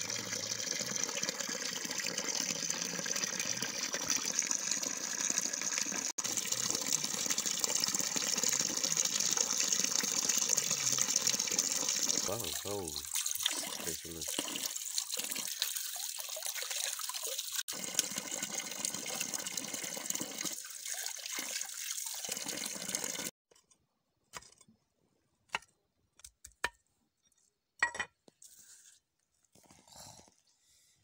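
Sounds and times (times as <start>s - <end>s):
water pouring over bamboo tubes: 0.0s - 23.3s.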